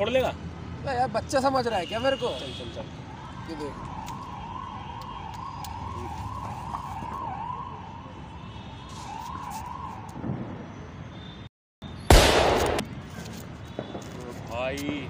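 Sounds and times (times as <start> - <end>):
siren warbling: 3.1 - 8.3.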